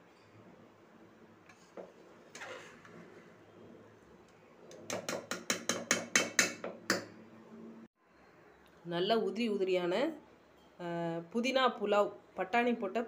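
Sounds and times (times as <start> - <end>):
spatula knocking on pot: 4.8 - 7.1.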